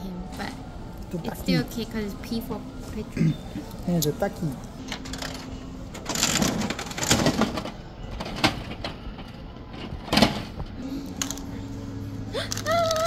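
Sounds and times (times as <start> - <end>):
shop background noise: 0.0 - 13.0
coins clinking into coin slot: 4.8 - 11.6.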